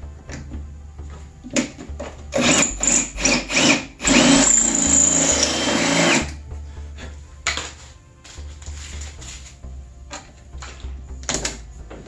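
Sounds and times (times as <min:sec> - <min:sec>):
power drill whining: 0:02.3 - 0:06.4.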